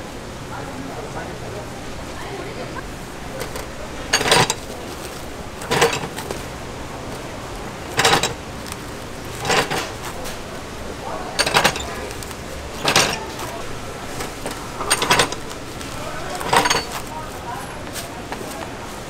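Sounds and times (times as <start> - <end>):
sharp clattering knocks: 3.4 - 6.5, 7.1 - 10.4.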